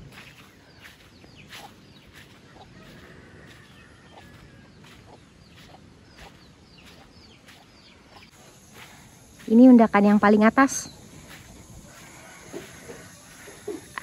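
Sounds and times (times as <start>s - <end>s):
small birds chirping: 0.0s - 14.0s
rooster crowing: 2.2s - 5.0s, 11.8s - 14.0s.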